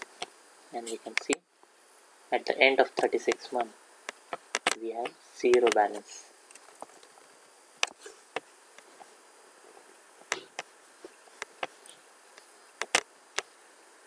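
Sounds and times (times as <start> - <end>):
faint steady hiss: 0.0 - 14.0.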